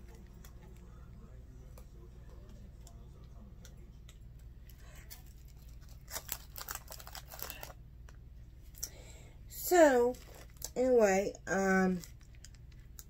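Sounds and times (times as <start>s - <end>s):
plastic bags crinkling: 4.7s - 7.8s, 9.9s - 10.7s, 11.6s - 13.0s.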